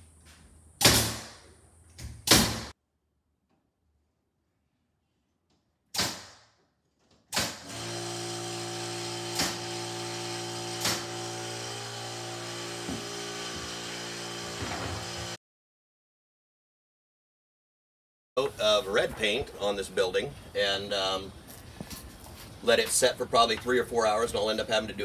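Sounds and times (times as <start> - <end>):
nailer shots: 0.8 - 2.7, 5.9 - 6.6, 7.3 - 12.0.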